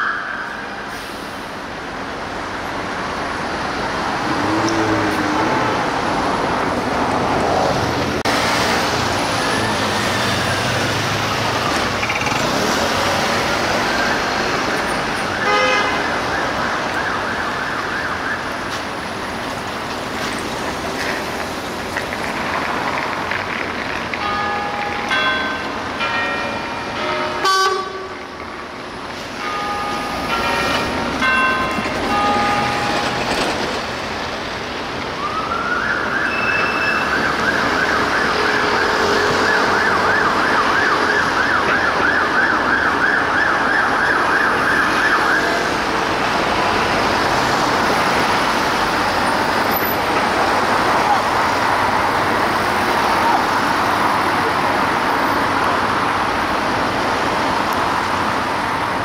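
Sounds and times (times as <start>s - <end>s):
emergency siren wailing: 0.0s - 0.9s, 13.0s - 19.3s, 35.1s - 47.3s
road traffic: 0.0s - 59.0s
vehicle horn blasts: 15.4s - 16.1s, 27.4s - 28.2s.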